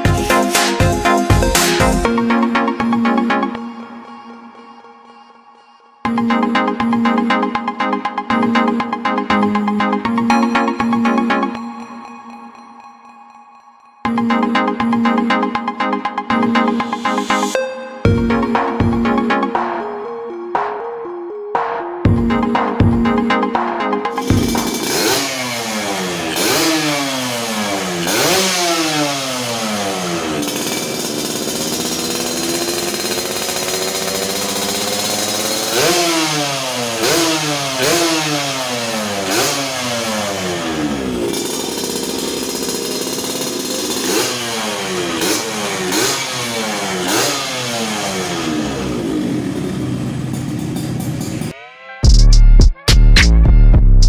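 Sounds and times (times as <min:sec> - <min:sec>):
two-stroke motorcycle engine revving: 0:24.1 - 0:51.5.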